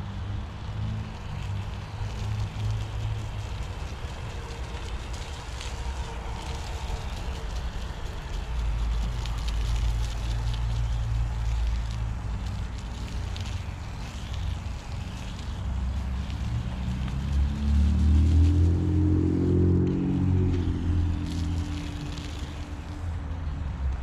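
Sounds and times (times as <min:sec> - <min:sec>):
foam sprayer hissing: 0:00.0 - 0:24.0
low rumble: 0:16.3 - 0:24.0.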